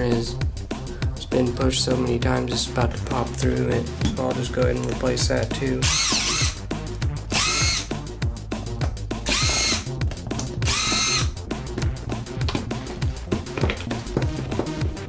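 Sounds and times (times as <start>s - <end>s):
background music with steady beat: 0.0s - 15.0s
cordless drill spinning: 5.8s - 6.6s, 7.3s - 7.9s, 9.2s - 11.4s.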